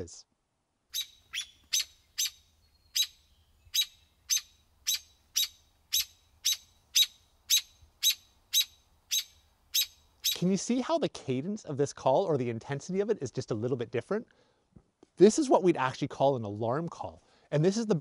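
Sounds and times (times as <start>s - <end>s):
bird alarm call chips: 0.9s - 10.5s.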